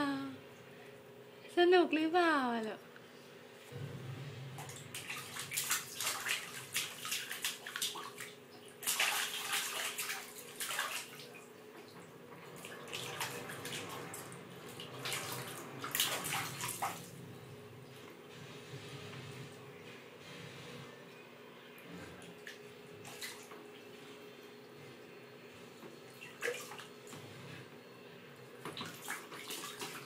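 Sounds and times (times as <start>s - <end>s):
baby splashing water in tub: 4.6s - 17.2s, 22.2s - 23.5s, 26.1s - 27.1s, 28.7s - 30.0s.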